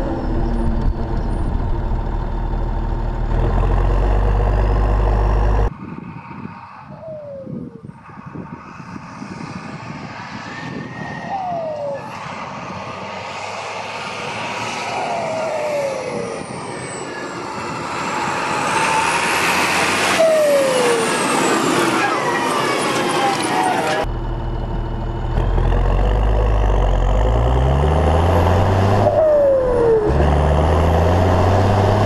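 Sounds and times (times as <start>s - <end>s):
tractor diesel engine: 0.0s - 5.7s, 13.6s - 32.0s.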